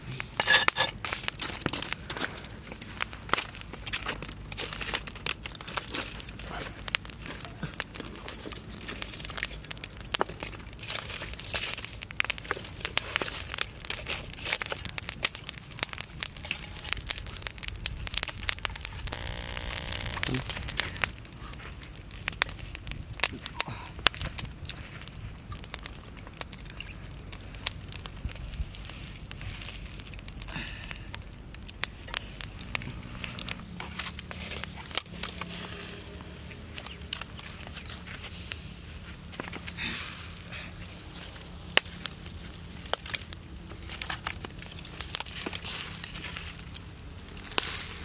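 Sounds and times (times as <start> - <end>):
charcoal fire crackling and popping: 0.0 - 48.0
embers stirred with stick: 0.0 - 48.0.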